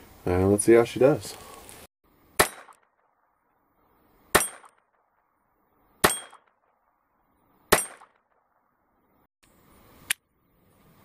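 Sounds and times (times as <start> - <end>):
pistol shots: 2.4 - 3.3, 4.3 - 5.2, 6.0 - 7.0, 7.7 - 8.7.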